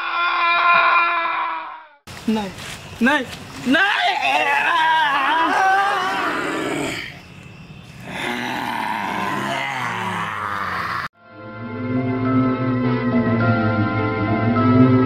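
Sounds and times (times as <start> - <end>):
cries: 0.0 - 2.0, 3.8 - 7.2, 8.1 - 11.1
monster roar: 8.0 - 11.1.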